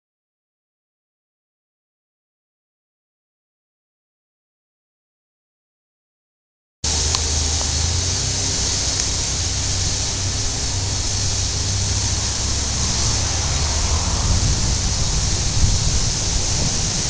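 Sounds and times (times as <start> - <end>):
wind buffeting microphone: 6.9 - 17.0.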